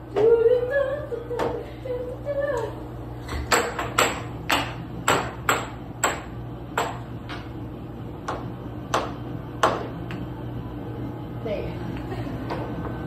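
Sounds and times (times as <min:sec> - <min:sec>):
steady low hum: 0:00.0 - 0:13.0
air hockey puck clacking: 0:03.3 - 0:07.5.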